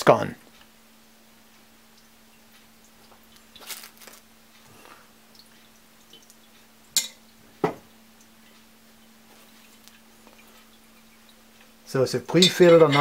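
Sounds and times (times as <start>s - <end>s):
handling rustle: 3.4s - 4.3s.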